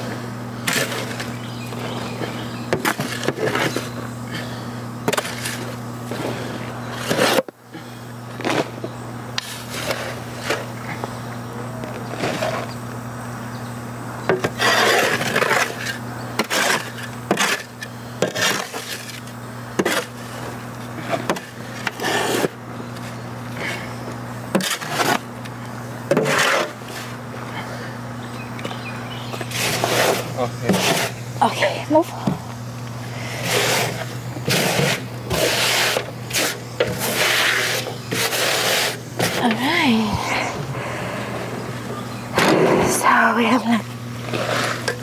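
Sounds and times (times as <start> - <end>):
steady low hum: 0.0 - 45.0
shovel scraping soil: 0.6 - 4.0, 5.1 - 7.5, 9.4 - 10.7, 14.4 - 23.0, 24.5 - 25.3, 26.1 - 27.2, 29.3 - 31.6, 33.3 - 39.8, 42.4 - 45.0.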